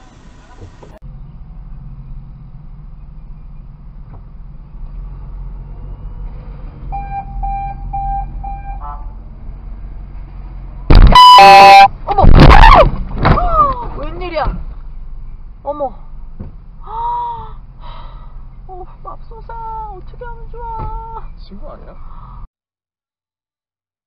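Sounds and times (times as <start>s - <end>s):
car engine humming: 0.0s - 12.0s, 13.1s - 22.4s
quick beeps: 6.9s - 8.8s, 10.9s - 11.9s
car horn blast: 7.0s - 9.2s, 10.9s - 11.9s.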